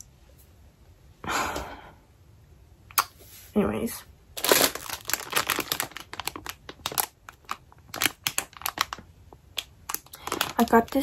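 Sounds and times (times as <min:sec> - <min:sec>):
plastic wrapping crinkling: 0:04.4 - 0:11.0.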